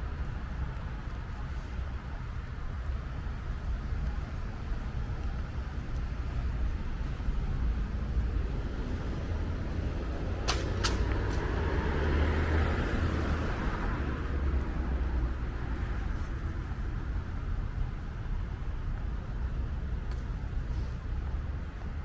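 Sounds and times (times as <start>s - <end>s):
traffic rumble: 0.0s - 22.0s
passing vehicle hiss: 7.1s - 17.5s, 20.1s - 22.0s.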